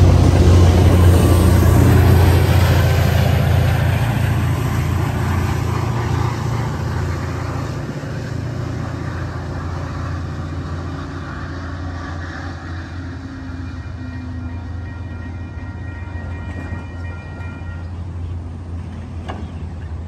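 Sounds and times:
diesel locomotive engine drone: 0:00.0 - 0:20.0
rail rumble: 0:00.0 - 0:20.0.

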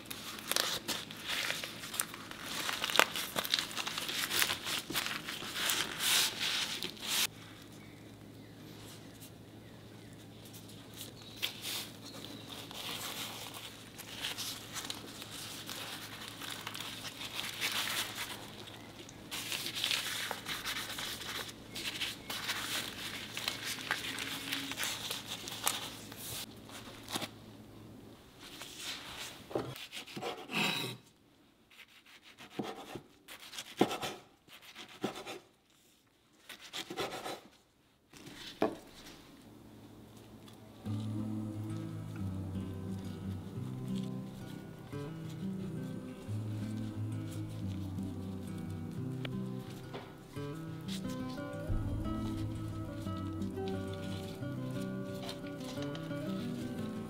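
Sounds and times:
gloved hands crinkling seaweed sheet: 0:00.0 - 0:08.0, 0:08.8 - 0:27.4, 0:38.1 - 0:57.0.

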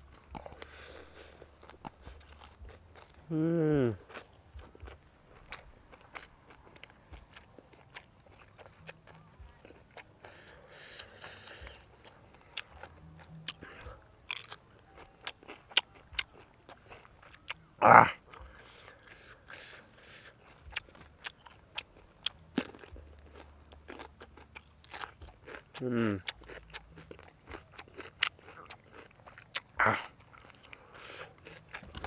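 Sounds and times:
person chewing crunchy food: 0:00.0 - 0:32.0.

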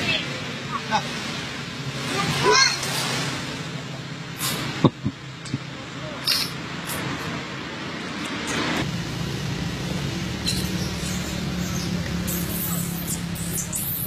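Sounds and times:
steady low hum: 0:08.8 - 0:14.0.

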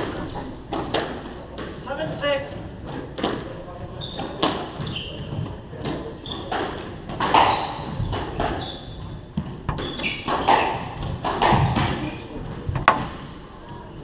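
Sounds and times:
shoes squeaking on wooden floor: 0:03.9 - 0:12.7
sharp knocks: 0:12.7 - 0:13.3.

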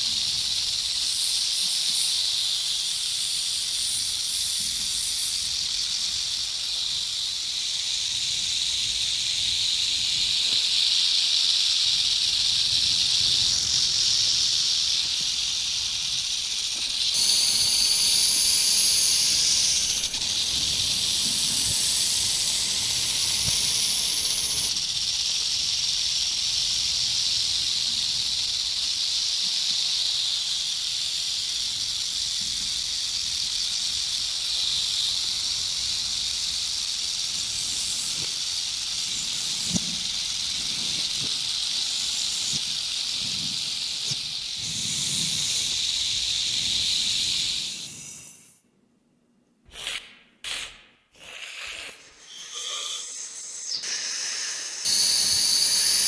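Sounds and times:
sharper second hiss: 0:00.0 - 0:48.6, 0:49.7 - 0:56.0
snake hissing: 0:00.0 - 0:48.6, 0:49.7 - 0:56.0.

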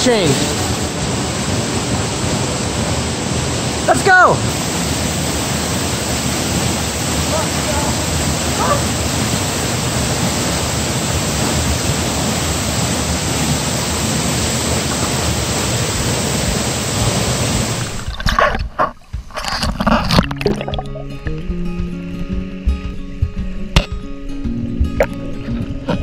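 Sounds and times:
waterfall rushing: 0:00.0 - 0:18.2
underwater splashing and gurgling: 0:04.6 - 0:21.5.

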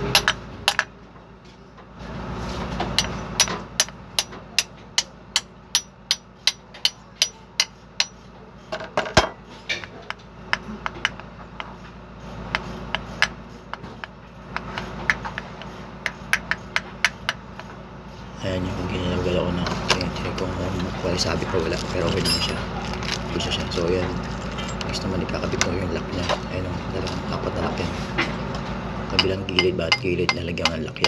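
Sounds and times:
hammer tapping on steel: 0:03.0 - 0:08.2, 0:29.2 - 0:31.0.

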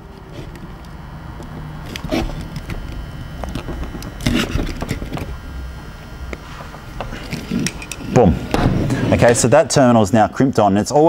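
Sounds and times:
crimping tool clicking and creaking: 0:00.1 - 0:05.4, 0:06.3 - 0:08.2.

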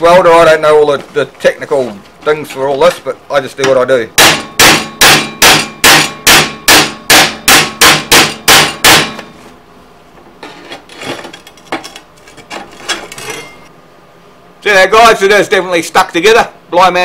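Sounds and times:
hammer striking metal: 0:04.2 - 0:09.3.

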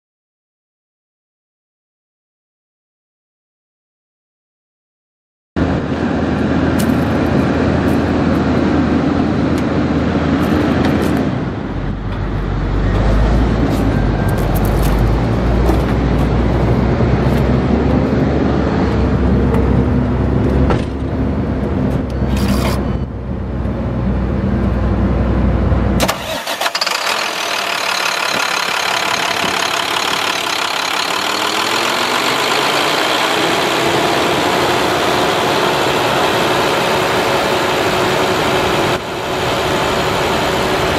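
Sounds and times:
faint engine whine: 0:05.6 - 0:40.9
diesel engine idling: 0:23.0 - 0:40.9.

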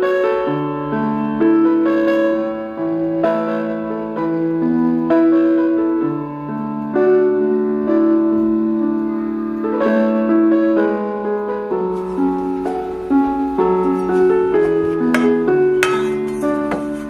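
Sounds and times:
keyboard music with held notes: 0:00.0 - 0:17.0.

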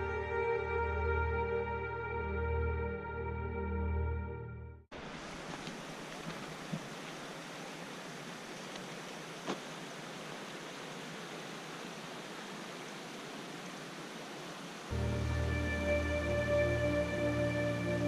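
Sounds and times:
background music: 0:00.0 - 0:04.8, 0:14.9 - 0:18.0
stream and waterfall rushing: 0:04.9 - 0:18.0.

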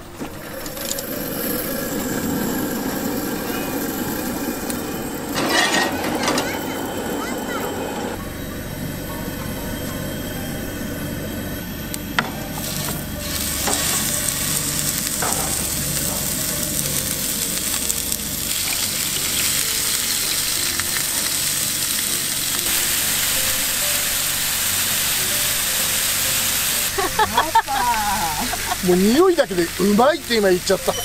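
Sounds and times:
meat sizzling in oil: 0:12.4 - 0:31.0.

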